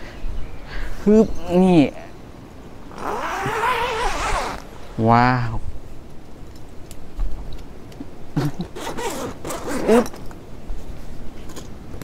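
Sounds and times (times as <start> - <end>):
tent zipper rasping: 2.9 - 5.0, 8.6 - 10.2.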